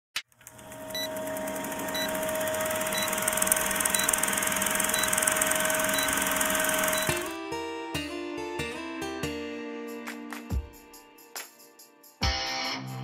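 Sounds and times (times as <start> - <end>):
film projector whirring and clattering: 0.2 - 7.4
short high beeps: 3.9 - 7.3
acoustic guitar music: 7.0 - 10.8.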